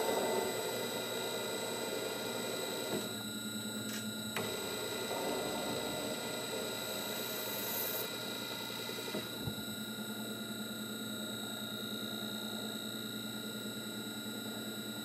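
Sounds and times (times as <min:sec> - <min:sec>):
lathe running with whine: 0:00.0 - 0:15.0
lathe cutting metal: 0:04.4 - 0:09.1.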